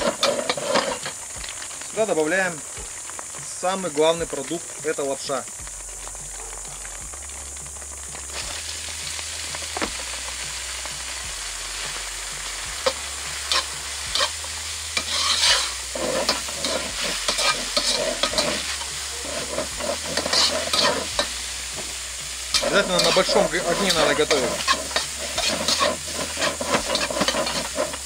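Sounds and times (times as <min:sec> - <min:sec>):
metal spatula scraping a wok: 0:00.0 - 0:01.4, 0:12.5 - 0:28.0
noodles sizzling in hot oil: 0:00.0 - 0:28.0.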